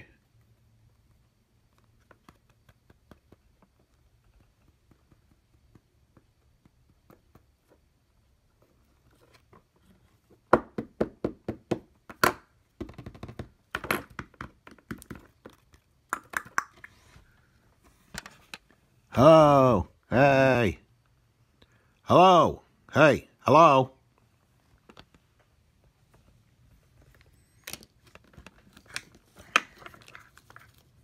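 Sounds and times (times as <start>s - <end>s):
small objects clicking and knocking: 12.1s - 17.0s.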